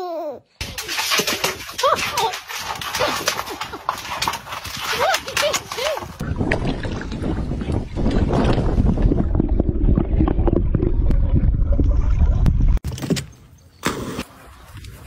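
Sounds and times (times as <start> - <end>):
dog splashing into lake: 0.6 - 7.1
low rumbling with knocks: 6.2 - 12.8.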